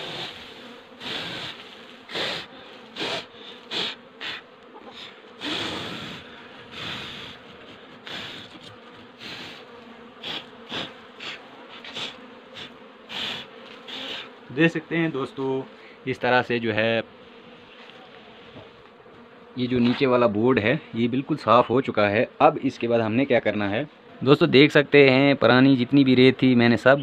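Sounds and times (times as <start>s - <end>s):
hand brushing wooden board: 0.0s - 14.3s
honeybees buzzing: 0.0s - 24.5s.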